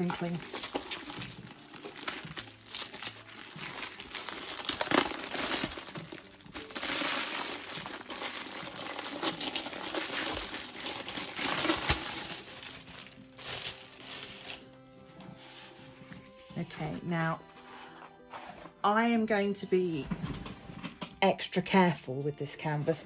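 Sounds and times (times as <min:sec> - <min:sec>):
plastic wrapping crinkling: 0:00.0 - 0:16.4.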